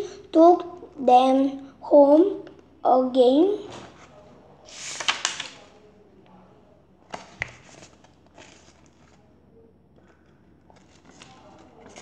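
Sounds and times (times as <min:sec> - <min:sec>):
book pages rustling: 0:03.7 - 0:05.6, 0:07.1 - 0:09.3, 0:10.0 - 0:12.0.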